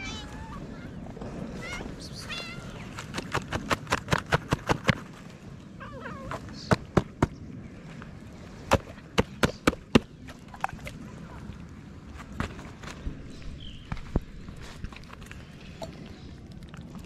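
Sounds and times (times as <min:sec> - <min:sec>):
cat meowing: 0:00.0 - 0:00.6.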